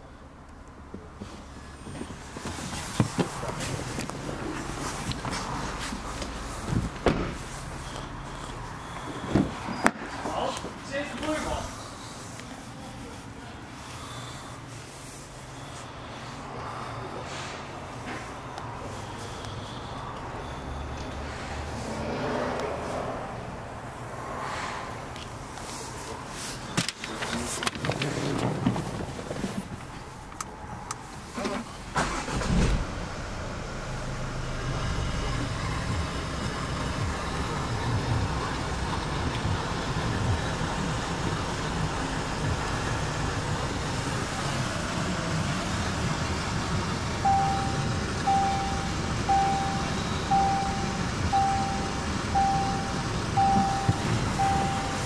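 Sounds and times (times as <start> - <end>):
car engine idling: 0.0 - 55.0
car engine starting: 0.0 - 55.0
warning chime beeping: 47.2 - 55.0.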